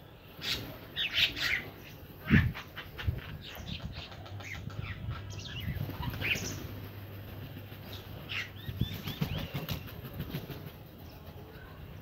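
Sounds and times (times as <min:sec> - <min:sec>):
wing flaps: 0:05.6 - 0:10.8.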